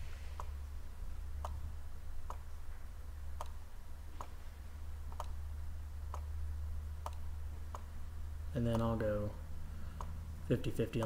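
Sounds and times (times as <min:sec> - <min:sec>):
low steady hum: 0:00.0 - 0:11.0
light sharp clicks: 0:02.2 - 0:03.6, 0:05.1 - 0:05.4, 0:06.1 - 0:06.4, 0:07.0 - 0:07.9, 0:08.6 - 0:09.2.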